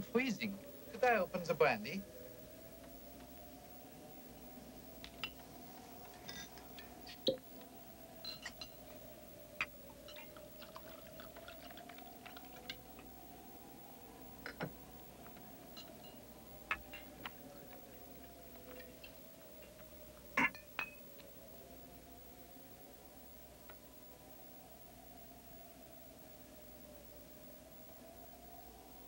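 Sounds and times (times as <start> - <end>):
faint steady hum: 0.0 - 29.0
brandy pouring: 10.0 - 13.0
glass clinking: 20.4 - 21.0.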